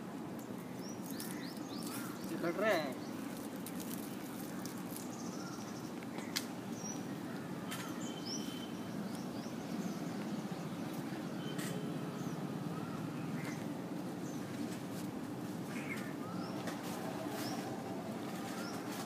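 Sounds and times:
bird chirps: 0.8s - 3.2s, 7.7s - 13.7s.

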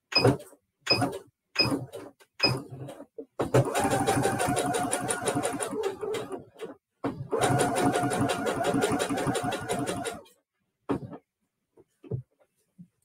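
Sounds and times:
sewing machine stitching: 1.0s - 10.3s.

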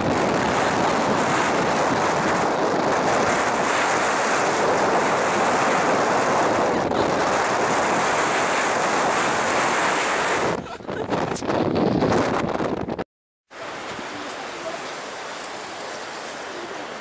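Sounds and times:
sea surf washing against stone: 0.0s - 11.3s
wind buffeting microphone: 0.0s - 13.0s.

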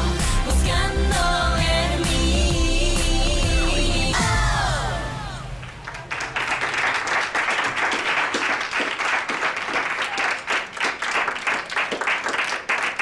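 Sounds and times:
song ending: 0.0s - 5.8s
people applauding: 5.6s - 13.0s.

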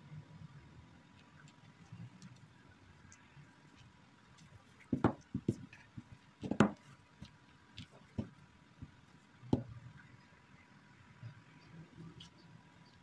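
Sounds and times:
rolling pin rolling over dough: 4.8s - 9.7s
sharp knocks: 6.4s - 6.8s.

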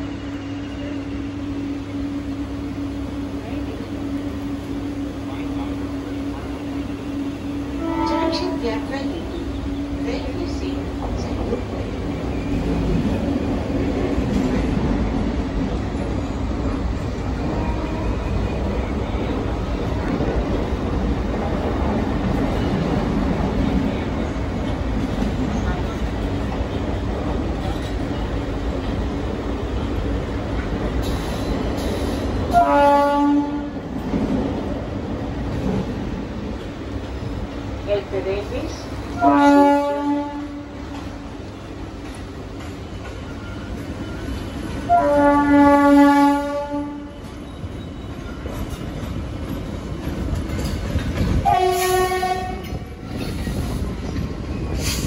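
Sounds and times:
train wheels rumbling on track: 0.0s - 55.0s
train horn blast: 7.7s - 8.8s, 32.5s - 33.8s, 39.1s - 40.8s, 44.8s - 47.2s, 51.4s - 52.8s.

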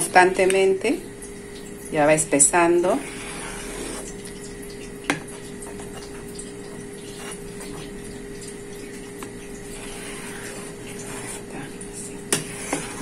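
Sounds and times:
steady hum: 0.0s - 13.0s
spoon scraping in pot: 2.6s - 4.4s, 9.0s - 13.0s.

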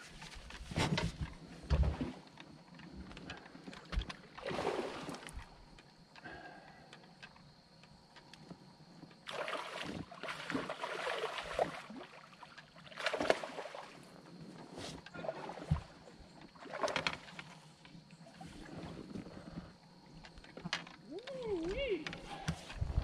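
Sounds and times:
water splashing against boat: 4.0s - 5.5s, 9.2s - 17.6s.

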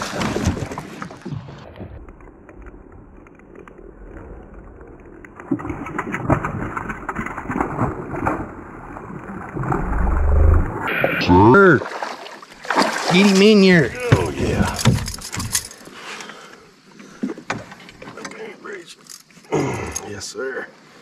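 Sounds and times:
fish splashing at water surface: 11.8s - 13.6s.

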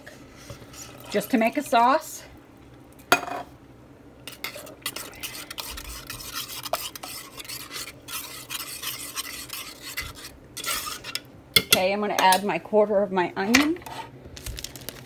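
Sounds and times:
spoon scraping a metal pot: 4.3s - 12.4s.

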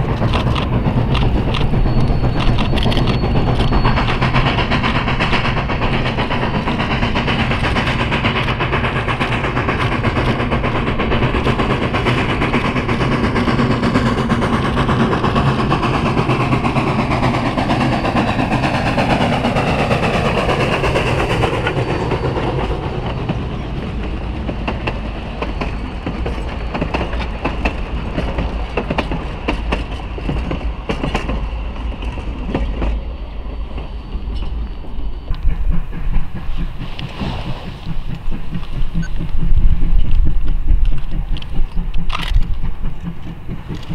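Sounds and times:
steam locomotive: 0.0s - 43.9s
wheels clicking over rail joints: 0.0s - 43.9s
steady low rumble: 31.5s - 43.9s.

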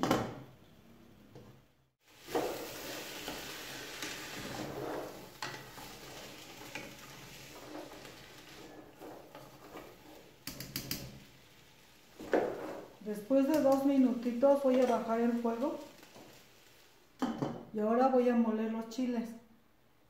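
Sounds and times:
vegetables sizzling in oil: 2.0s - 17.8s.

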